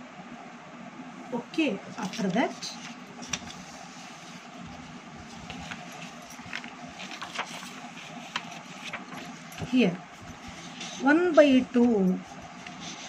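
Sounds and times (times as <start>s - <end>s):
low room hum: 0.0s - 13.0s
paper and phone handling clicks: 5.4s - 9.8s.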